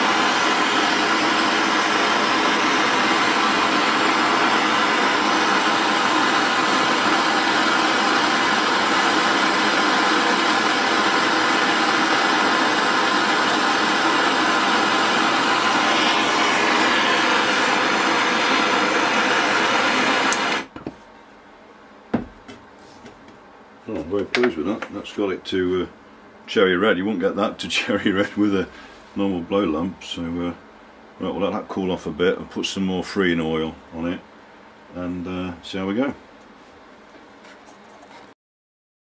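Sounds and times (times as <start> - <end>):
torch flame hissing: 0.0 - 20.8.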